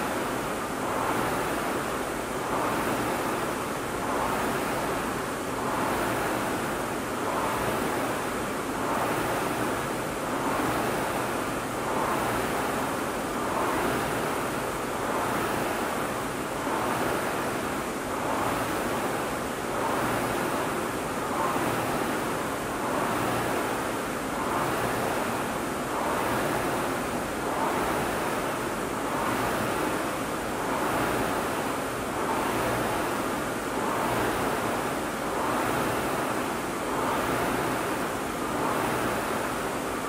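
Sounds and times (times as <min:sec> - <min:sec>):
rowing machine flywheel whooshing: 0:00.0 - 0:40.0.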